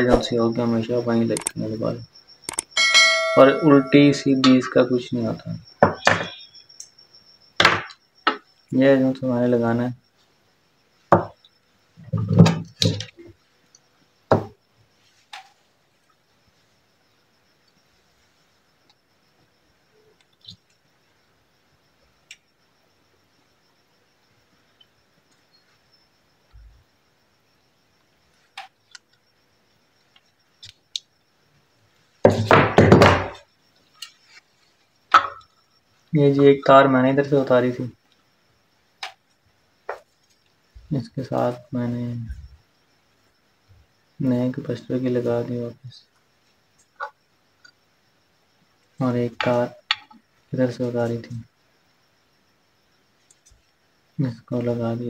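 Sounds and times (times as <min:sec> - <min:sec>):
knocks and thuds of tools set down: 0:05.8 - 0:06.4, 0:07.6 - 0:08.4, 0:12.1 - 0:13.1, 0:14.3 - 0:14.6, 0:32.2 - 0:33.4, 0:35.1 - 0:35.4
faint ticks: 0:12.8 - 0:13.9, 0:18.8 - 0:20.9, 0:22.1 - 0:22.7, 0:27.9 - 0:31.3, 0:38.0 - 0:38.4, 0:46.1 - 0:47.9, 0:53.2 - 0:53.8.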